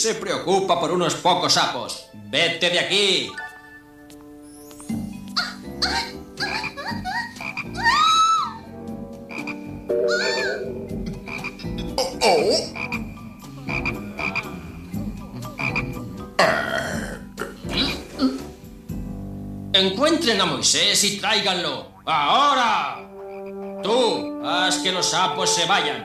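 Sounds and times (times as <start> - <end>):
cartoon frogs croaking: 5.4 - 8.5, 9.2 - 18.1, 21.9 - 24.3.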